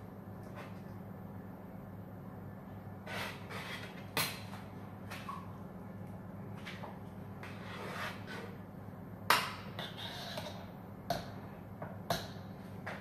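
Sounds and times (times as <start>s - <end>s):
spatula scraping batter: 3.0s - 4.2s, 6.6s - 8.7s, 9.7s - 10.7s.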